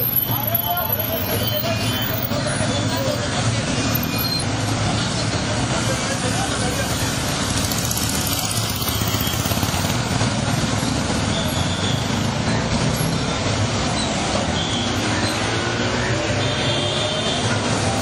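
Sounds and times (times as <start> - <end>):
road noise: 0.0 - 18.0
motorcycle engines passing slowly: 2.3 - 16.2.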